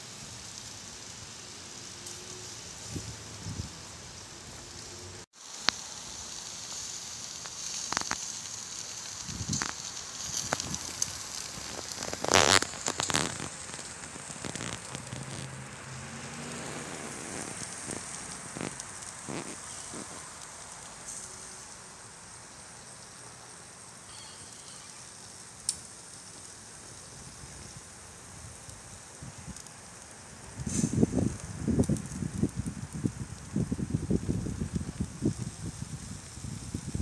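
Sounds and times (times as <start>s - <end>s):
steak sizzling on a grill: 0.0s - 37.0s
fat popping and crackling: 5.5s - 21.5s, 28.6s - 37.0s.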